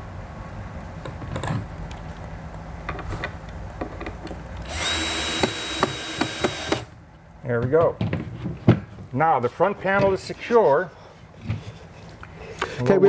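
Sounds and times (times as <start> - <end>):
power drill whining: 4.6 - 6.9.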